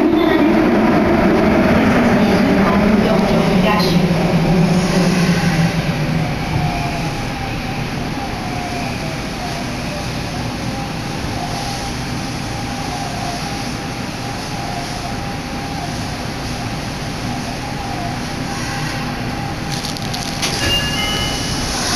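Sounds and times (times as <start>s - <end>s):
train rumble and hiss: 0.0s - 21.9s.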